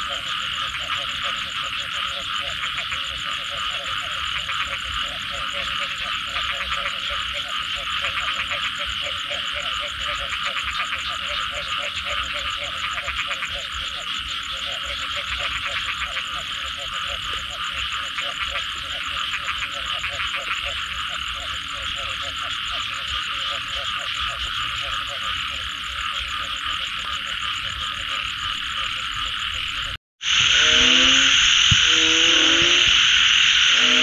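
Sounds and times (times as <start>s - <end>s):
frogs croaking: 0.0s - 34.0s
frogs trilling: 0.0s - 34.0s.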